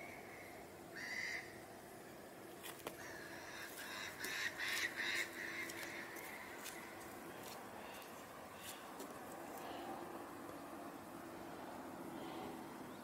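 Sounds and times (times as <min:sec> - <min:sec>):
bird calling: 0:00.0 - 0:01.6, 0:02.9 - 0:10.1.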